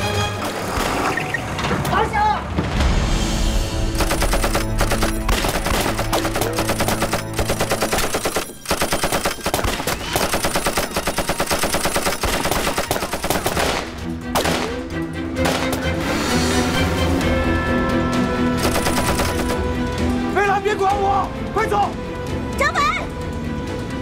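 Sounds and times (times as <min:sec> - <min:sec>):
machine gun firing bursts: 0:03.9 - 0:14.6, 0:18.6 - 0:19.6.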